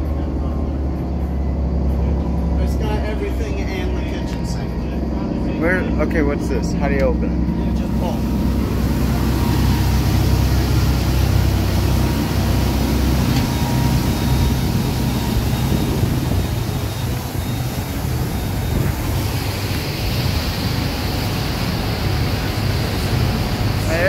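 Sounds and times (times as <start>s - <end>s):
boat engines droning: 0.0s - 24.0s
rushing water of boat wake: 5.4s - 24.0s.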